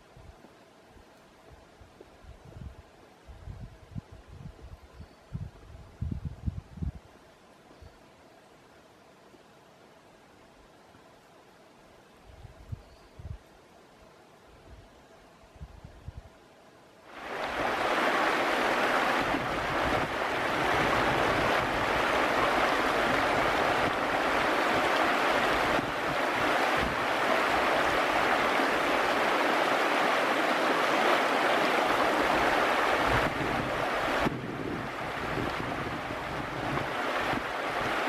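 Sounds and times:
river rushing over rocks: 17.1s - 38.0s.

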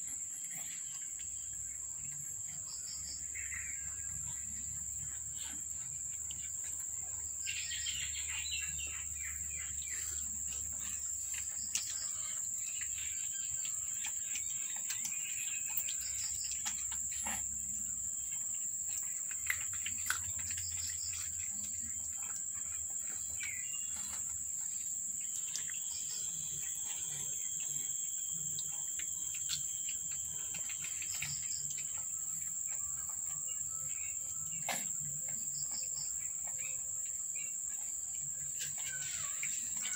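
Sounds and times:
insect chorus: 0.0s - 39.9s
birds chirping: 0.5s - 39.9s.

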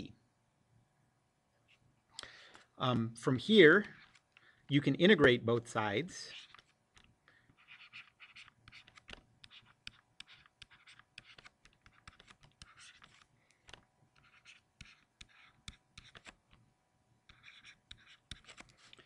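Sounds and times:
scratchy pen strokes: 6.2s - 13.2s, 14.1s - 16.6s, 17.3s - 19.0s.

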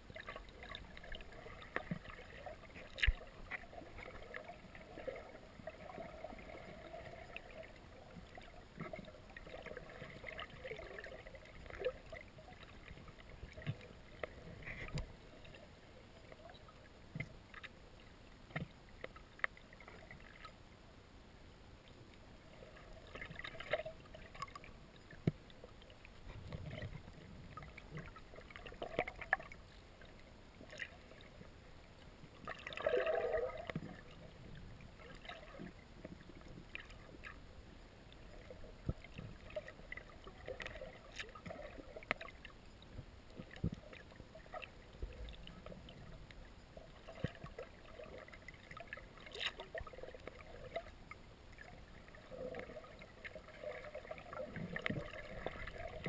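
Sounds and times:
underwater rush: 0.0s - 20.6s, 22.3s - 56.0s
small underwater clicks and knocks: 0.0s - 20.7s, 21.8s - 56.0s
underwater water movement: 0.0s - 56.0s.

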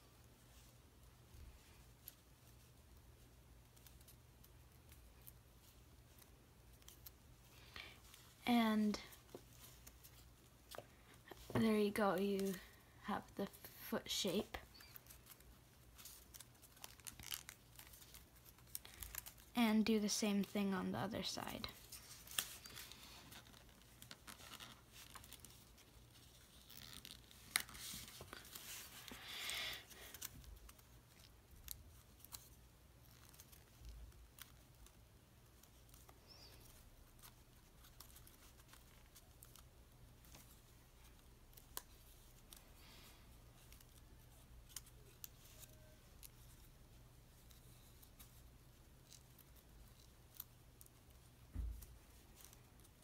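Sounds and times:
paper rustling and crinkling: 14.6s - 19.5s, 21.2s - 53.0s.

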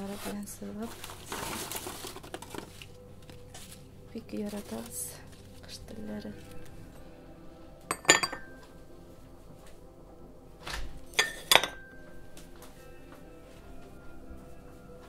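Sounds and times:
dishes clinking: 7.9s - 8.7s, 11.2s - 12.0s.

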